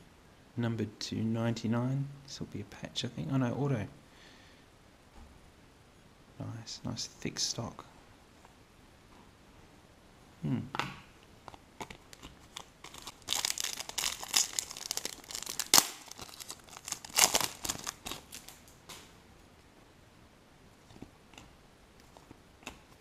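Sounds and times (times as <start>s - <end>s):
foil wrapper tearing and crinkling: 11.8s - 18.9s.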